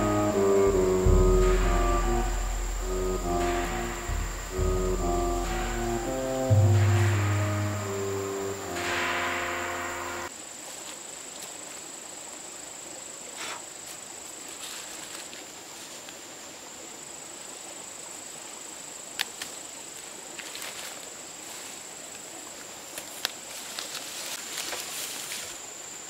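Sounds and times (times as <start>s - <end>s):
background music: 0.0s - 10.3s
high-pitched insect drone: 0.0s - 10.3s
fern fronds rustling: 20.4s - 21.9s, 22.9s - 25.6s.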